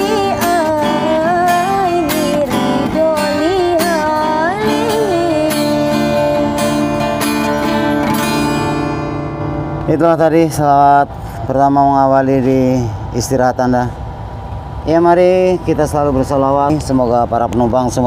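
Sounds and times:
woman singing: 0.0 - 8.1
strummed acoustic guitar: 0.0 - 11.5.

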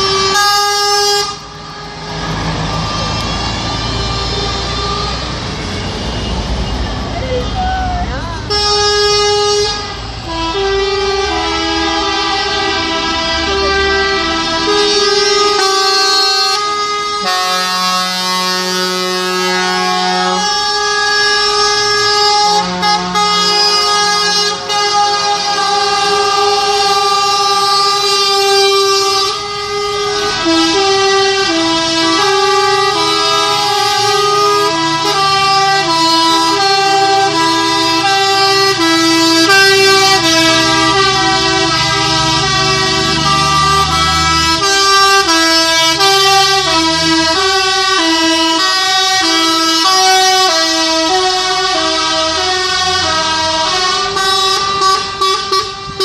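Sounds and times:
two-tone truck horns: 0.0 - 56.0
truck engine running: 18.6 - 56.0.

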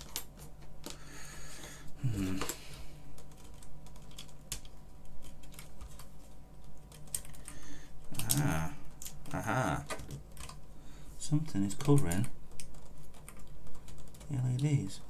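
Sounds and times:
person muttering: 2.0 - 2.6, 8.1 - 10.0.

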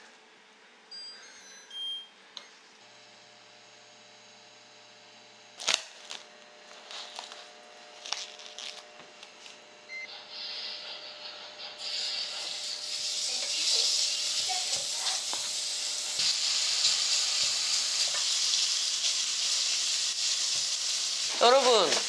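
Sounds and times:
cooktop touch panel beeps: 0.9 - 2.6, 9.9 - 10.2
hot oil sizzling in pan: 10.2 - 21.9.

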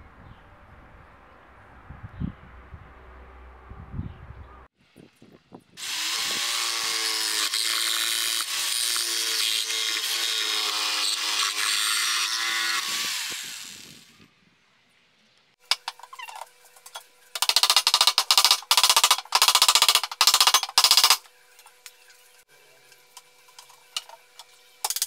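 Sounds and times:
jigsaw cutting metal: 5.8 - 14.1, 17.4 - 21.2.

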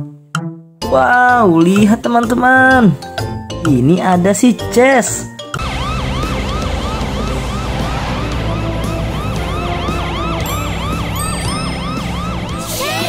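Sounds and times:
steady low rumble: 5.6 - 11.1
cartoon siren yelping: 5.6 - 13.0.

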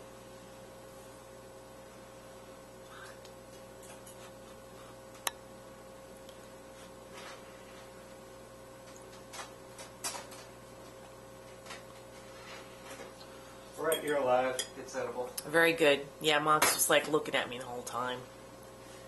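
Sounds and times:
faint electrical hum: 0.0 - 19.0.

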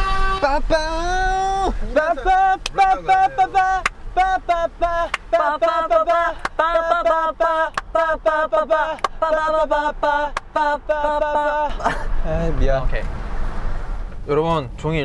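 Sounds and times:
men singing ba-ba-ba syllables: 0.5 - 11.8.

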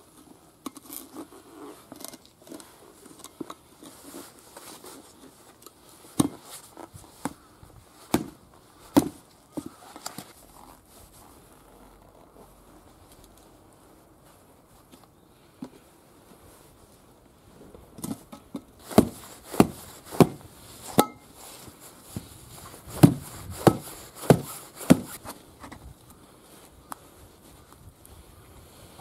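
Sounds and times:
hammer striking tyre: 21.0 - 21.2.

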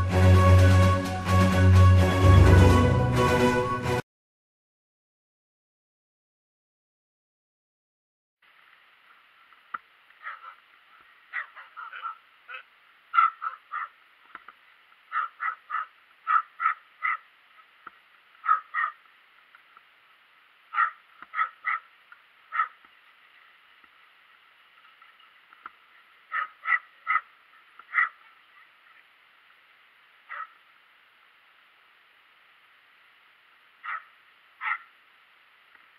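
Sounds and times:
small dog yapping: 10.2 - 10.6, 11.3 - 12.6, 13.2 - 14.0, 15.1 - 17.2, 18.4 - 19.0, 20.7 - 21.9, 22.5 - 22.8, 26.3 - 27.3, 27.9 - 28.2, 30.3 - 30.6, 33.8 - 34.9.

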